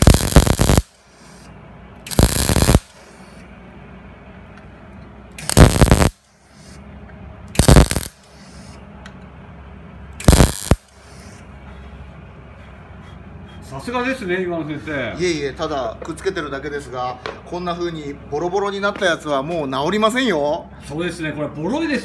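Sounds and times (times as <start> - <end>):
welding arc crackling: 0.0 - 3.4, 5.4 - 6.8, 7.5 - 8.7, 10.2 - 11.2.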